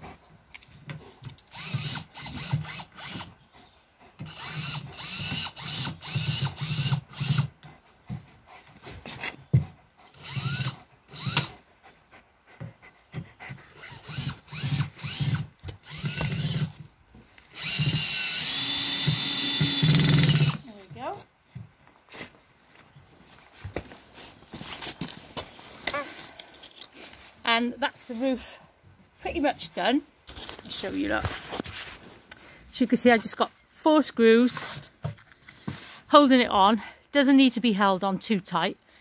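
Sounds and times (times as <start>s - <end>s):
cordless drill driving screws: 1.4s - 3.3s, 4.2s - 7.6s, 10.2s - 11.5s, 13.8s - 16.8s, 17.4s - 20.6s.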